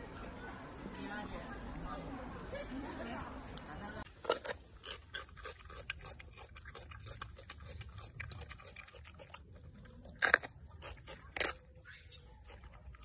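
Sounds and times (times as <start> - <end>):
monkey chewing crunchy pepper: 4.1 - 13.0.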